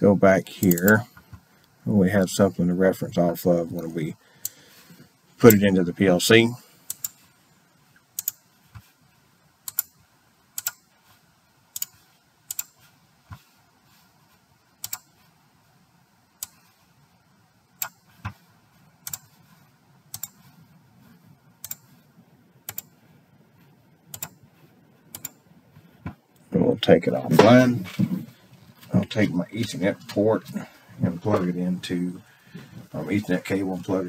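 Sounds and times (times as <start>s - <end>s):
computer mouse clicking: 6.9s - 7.2s, 8.0s - 8.9s, 9.6s - 10.9s, 11.7s - 13.5s, 14.8s - 15.2s, 16.4s - 16.8s, 17.8s - 18.4s, 19.0s - 19.5s, 20.1s - 20.5s, 21.6s - 22.0s, 22.6s - 23.0s, 24.1s - 24.4s, 25.1s - 25.4s.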